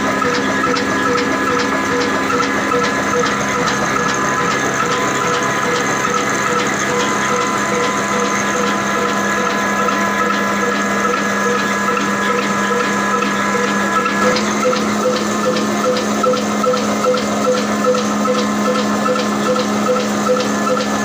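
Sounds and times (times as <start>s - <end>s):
diesel engine running slowly: 0.0s - 21.0s
regular short mechanical clicks: 0.0s - 21.0s.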